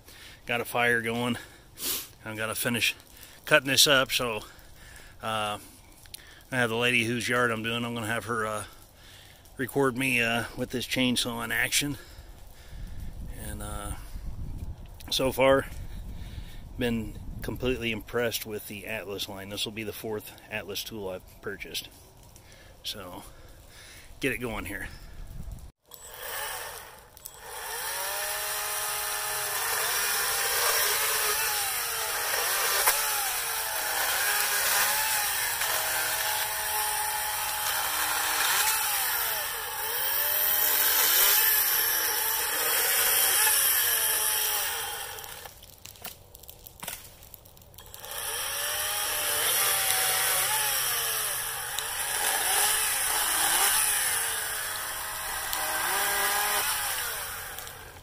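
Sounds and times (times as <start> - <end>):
electric chainsaw cutting wood: 25.8 - 46.2, 46.8 - 58.0.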